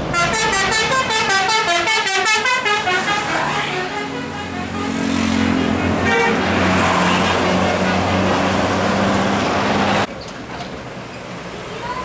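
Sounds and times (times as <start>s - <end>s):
bus engine humming: 0.0s - 12.0s
tyre and road noise: 0.0s - 12.0s
horn toot: 0.1s - 8.6s.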